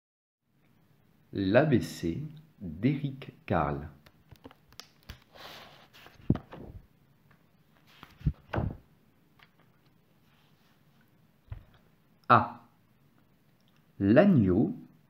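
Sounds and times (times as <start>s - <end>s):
soft thumps: 11.5s - 11.8s.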